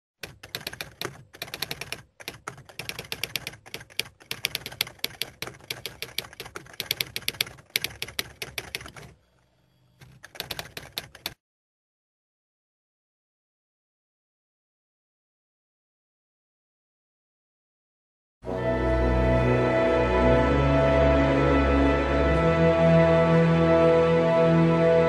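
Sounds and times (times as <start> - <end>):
typewriter keys clacking: 0.2 - 9.2, 10.0 - 11.4.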